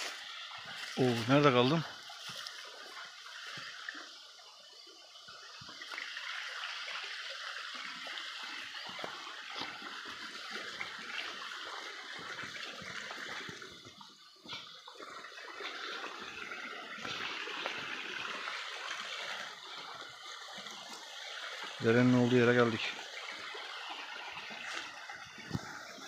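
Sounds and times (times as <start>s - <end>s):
footsteps on dry leaves: 0.0s - 1.4s, 2.0s - 3.5s
stream rushing: 0.0s - 26.0s.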